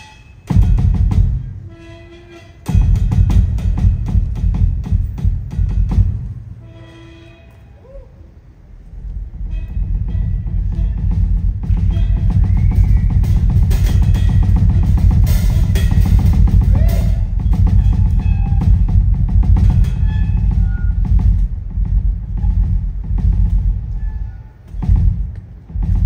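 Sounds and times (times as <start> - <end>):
cymbals ringing: 0.0 - 7.8, 9.4 - 25.3
bass drum: 0.5 - 1.6, 2.7 - 6.5, 9.2 - 26.0
snare and toms struck rapidly: 0.5 - 1.6, 2.7 - 6.4, 10.4 - 23.9, 24.7 - 26.0.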